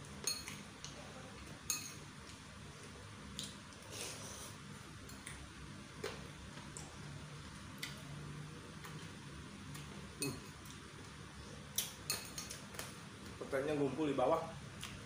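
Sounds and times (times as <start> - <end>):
metal spoon clinking ceramic bowl: 0.2 - 0.6, 1.7 - 2.0, 12.1 - 12.6.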